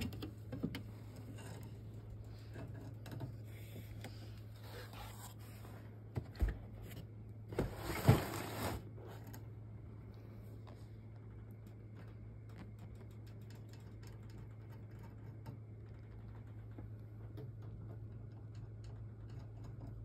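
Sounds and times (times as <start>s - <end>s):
steady low hum: 0.0s - 20.0s
scraping rustle: 7.5s - 9.3s.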